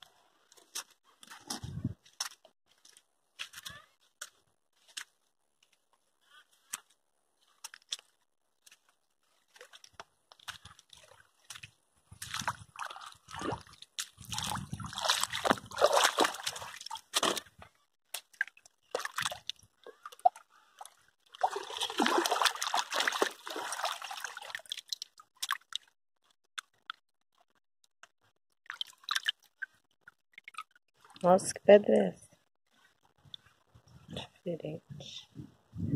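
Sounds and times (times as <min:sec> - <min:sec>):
hands splashing in water: 0:11.0 - 0:17.5, 0:18.1 - 0:25.8
water dripping: 0:18.1 - 0:25.9, 0:28.6 - 0:31.4.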